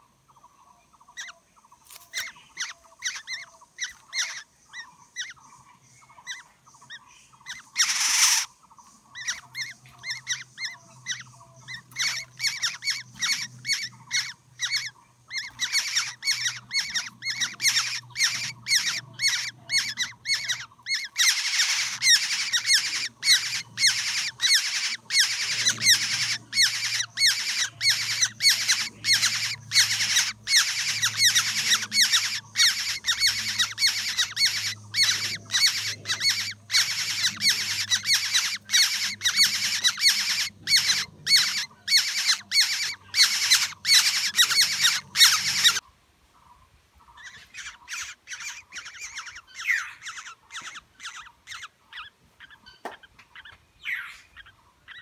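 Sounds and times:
nestlings begging calls: 0:00.0 - 0:45.8, 0:47.0 - 0:55.0
harsh bird squawk: 0:01.0 - 0:45.8, 0:47.1 - 0:55.0.

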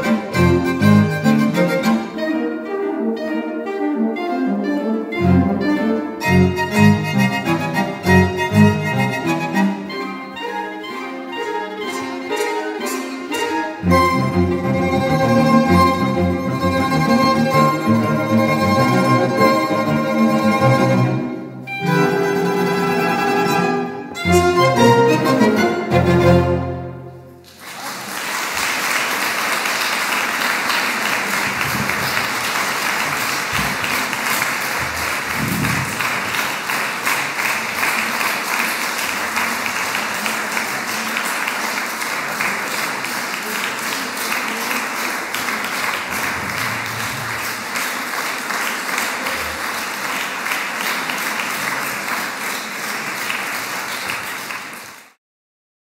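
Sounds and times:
audience applauding: 0:27.4 - 0:55.2.

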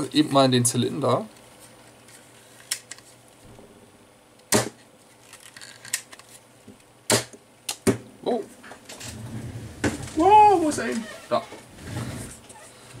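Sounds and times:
foam dart blaster snaps: 0:04.5 - 0:04.8, 0:07.1 - 0:08.0.

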